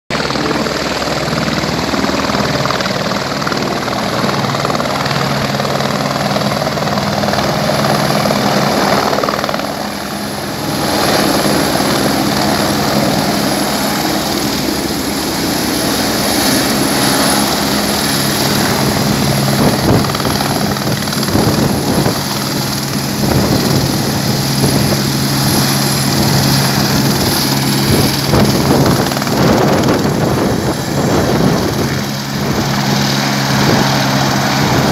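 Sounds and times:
helicopter rotor thudding: 0.2 - 34.9.

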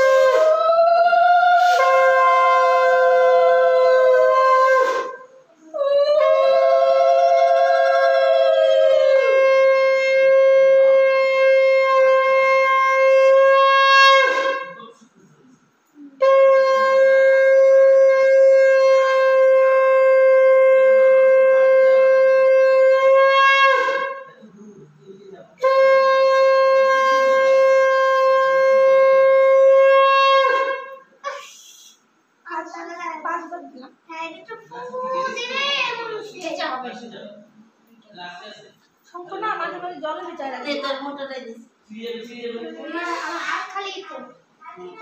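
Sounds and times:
conch shell blasts: 0.0 - 0.7, 1.4 - 5.5, 6.2 - 15.0, 16.2 - 24.4, 25.6 - 32.1.

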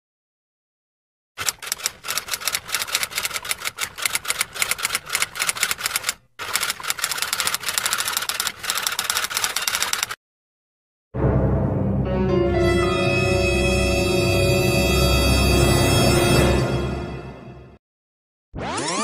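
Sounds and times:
manual typewriter typing: 1.4 - 10.2.

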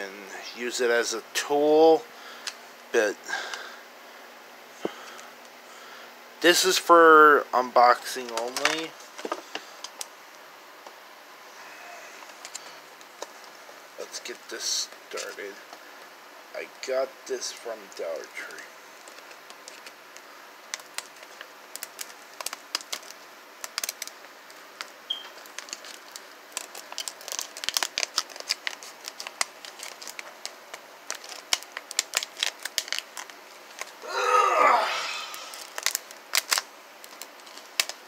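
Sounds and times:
plastic packaging crinkling: 7.8 - 10.1, 12.3 - 15.6, 17.9 - 34.3, 35.3 - 38.0
plastic ripping: 8.2 - 10.1, 18.5 - 38.0.

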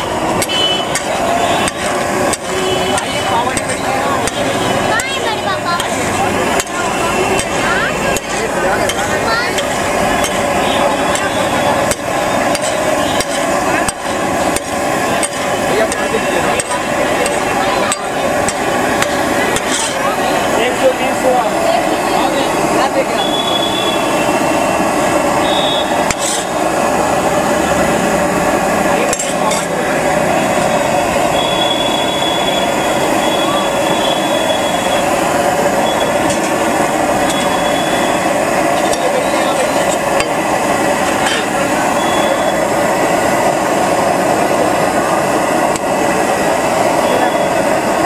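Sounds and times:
crowd chatter: 0.0 - 48.0
metal spatula clinking on griddle: 19.6 - 20.0
thin high tone: 37.2 - 39.9.

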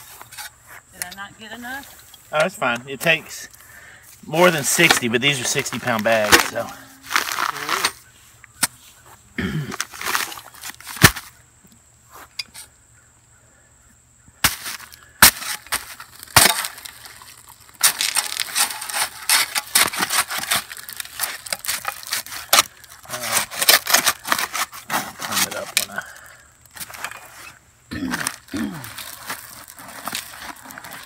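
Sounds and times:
shovel scraping in dry concrete: 0.0 - 1.2, 4.2 - 8.0, 9.7 - 11.3, 14.4 - 31.0.

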